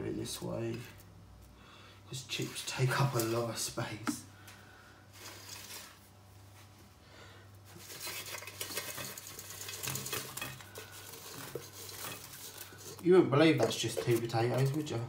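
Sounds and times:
low steady hum: 0.0 - 15.0
chips clattering onto plate: 7.8 - 15.0.

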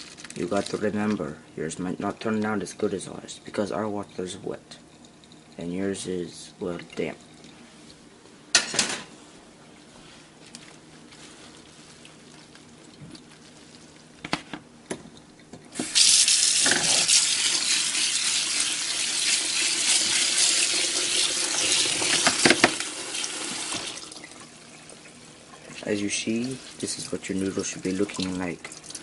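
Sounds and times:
faucet water running into bowl: 15.7 - 29.0.

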